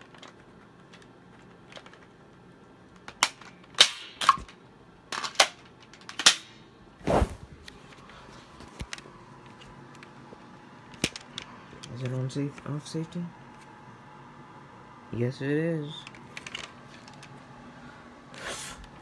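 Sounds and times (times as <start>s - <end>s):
handling clicks and knocks: 0.0s - 2.2s.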